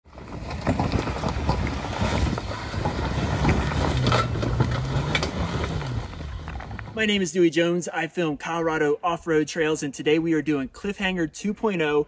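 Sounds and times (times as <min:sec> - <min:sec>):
off-road vehicle engine: 0:00.0 - 0:07.2
tyres rumbling over loose rock: 0:00.1 - 0:07.0.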